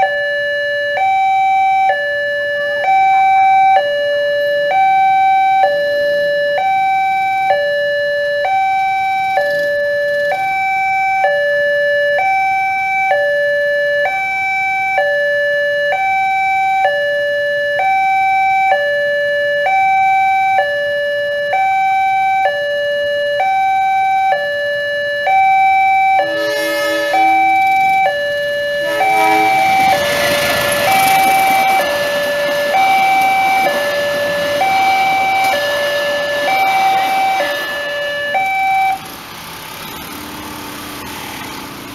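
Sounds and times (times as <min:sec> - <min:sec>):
two-tone crossing alarm: 0:00.0 - 0:39.6
train horn blasts: 0:26.1 - 0:38.7
train passing with wheel noise: 0:26.1 - 0:41.9.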